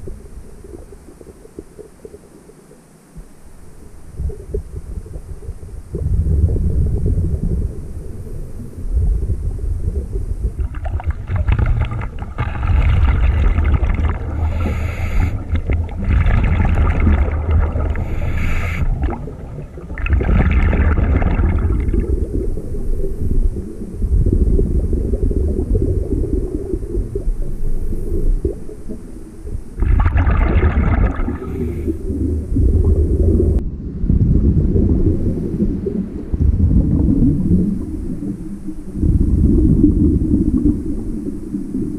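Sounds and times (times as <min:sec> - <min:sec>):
low bubbling rumble: 0:00.0 - 0:02.5, 0:03.2 - 0:41.9
regulator hissing inhalations: 0:14.1 - 0:15.9, 0:17.7 - 0:19.4.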